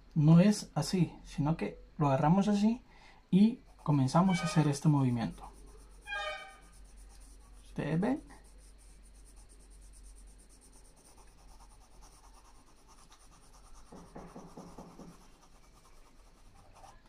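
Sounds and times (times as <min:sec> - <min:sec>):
pencil scratching on paper: 0:03.6 - 0:17.0.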